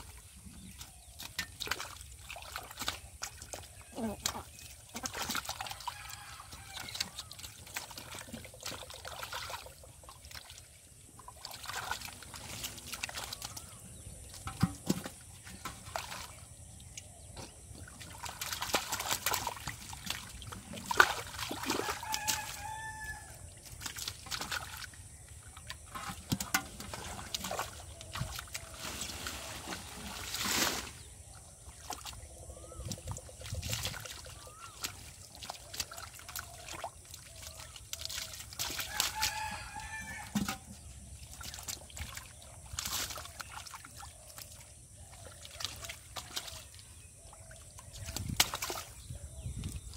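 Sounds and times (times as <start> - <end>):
muddy water splashing: 0.0 - 49.9
rooster crowing: 5.8 - 7.1, 21.7 - 23.4, 38.9 - 40.4.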